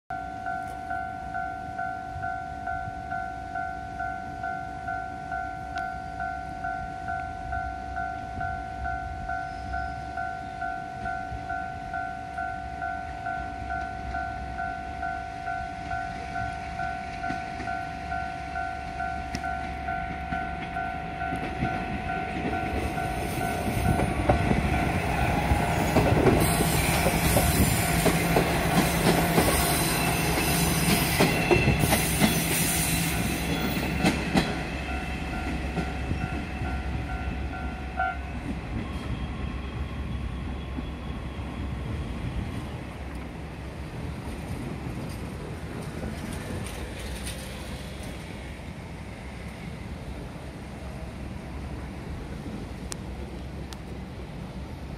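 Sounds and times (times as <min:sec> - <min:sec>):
diesel railcar engine: 0:00.1 - 0:54.9
wheels clacking over rail joints: 0:18.9 - 0:36.8, 0:44.2 - 0:48.3
level crossing alarm ringing: 0:33.5 - 0:38.3.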